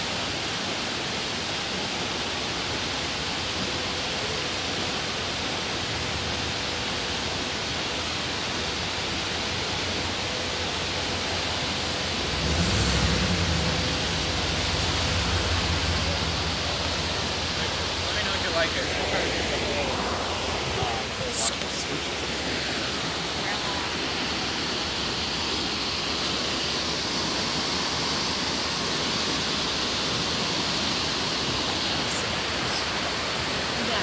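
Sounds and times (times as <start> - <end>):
waterfall rushing: 0.0 - 34.0
low rumble: 12.1 - 21.4.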